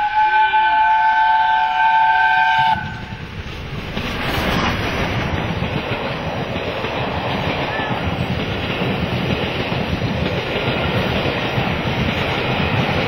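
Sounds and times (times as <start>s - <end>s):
steam locomotive whistle: 0.0s - 3.2s
locomotive rumbling and hissing past: 0.0s - 13.0s.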